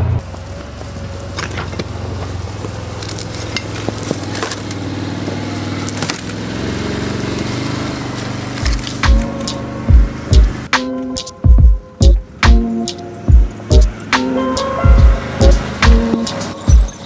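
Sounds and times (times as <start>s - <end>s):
utility vehicle engine running: 0.0s - 17.0s
twigs and branches snapping: 1.3s - 6.4s, 8.5s - 9.5s.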